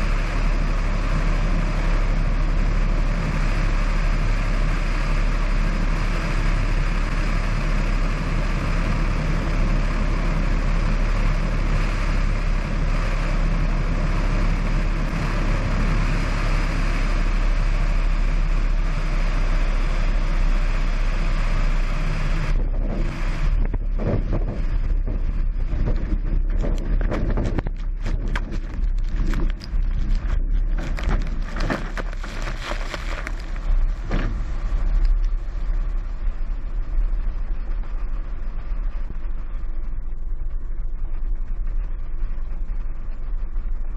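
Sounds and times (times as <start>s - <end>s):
wind rushing over camera: 22.3s - 43.9s.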